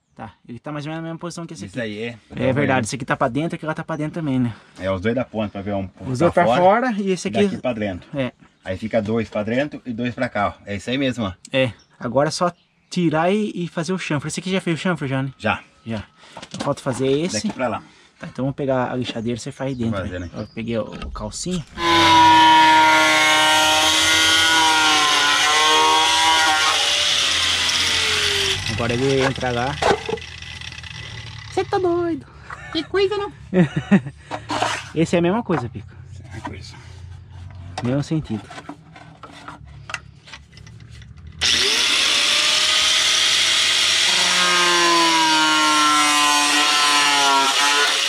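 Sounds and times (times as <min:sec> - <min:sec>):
angle grinder grinding steel: 0:21.6 - 0:32.0, 0:41.4 - 0:48.0.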